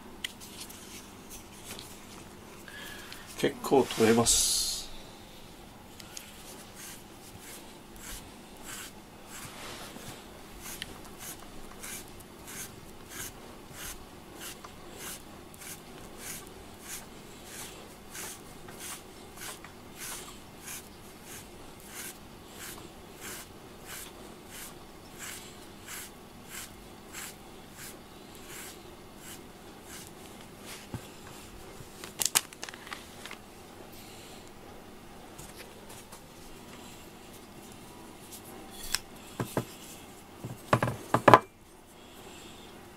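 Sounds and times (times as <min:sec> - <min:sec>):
metal comb rasping through fur: 0:06.6 - 0:09.6, 0:10.6 - 0:30.1.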